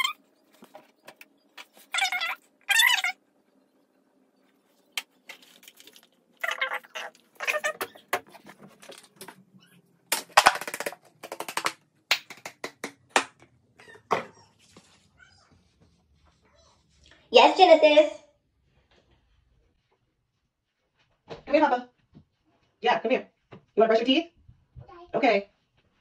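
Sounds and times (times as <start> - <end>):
bottles clicking and rattling: 10.1 - 11.8.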